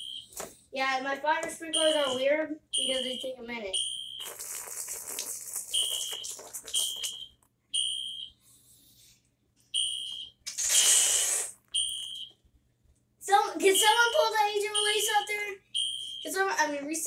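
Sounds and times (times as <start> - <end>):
fire alarm horn beeping: 0.0 - 0.3, 1.7 - 4.3, 5.7 - 8.4, 9.8 - 10.3, 11.8 - 12.3, 13.6 - 16.4.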